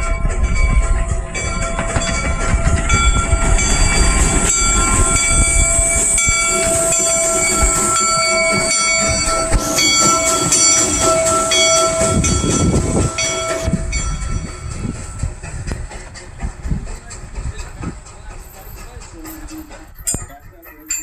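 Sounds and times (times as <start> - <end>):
high ringing tones: 0.0 - 15.5
steam locomotive running: 0.0 - 21.0.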